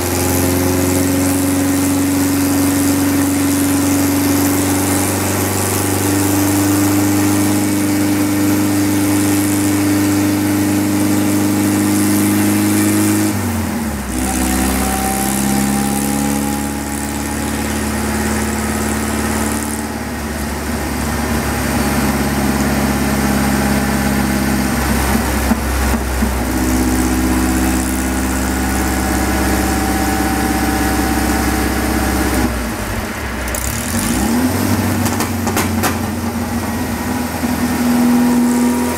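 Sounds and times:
supercharged engine on dyno: 0.0s - 38.9s.

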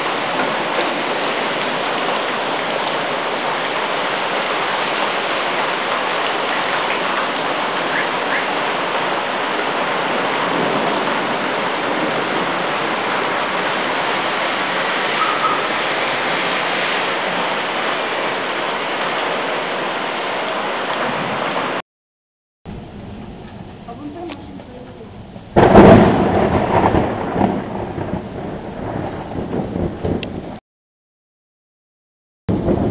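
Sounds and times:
heavy rain pouring: 0.0s - 21.8s, 22.7s - 30.6s, 32.5s - 32.9s.

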